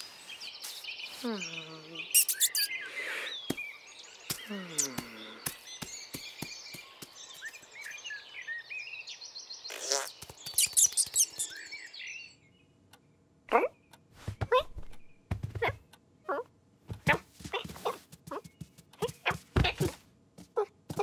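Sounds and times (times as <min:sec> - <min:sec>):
birds chirping: 0:00.0 - 0:21.0
sharp high chirps: 0:02.1 - 0:02.8.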